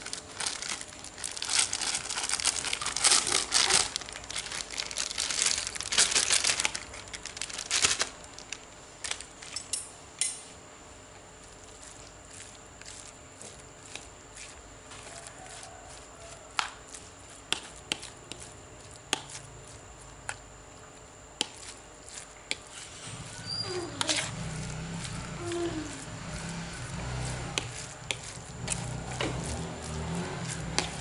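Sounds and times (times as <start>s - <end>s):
spoon mashing bait in bowl: 11.5s - 31.0s.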